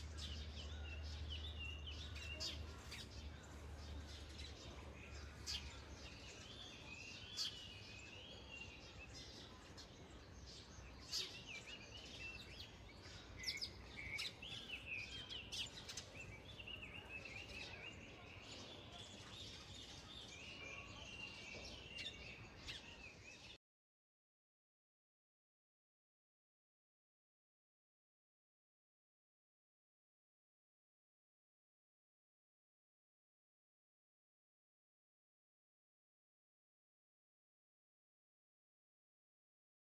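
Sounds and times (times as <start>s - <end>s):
faint background noise: 0.0s - 23.6s
small birds chirping: 0.0s - 23.6s.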